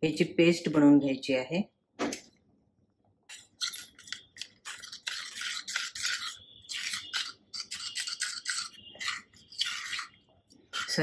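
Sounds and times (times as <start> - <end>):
metal spoon scraping steel bowl: 3.3 - 11.0.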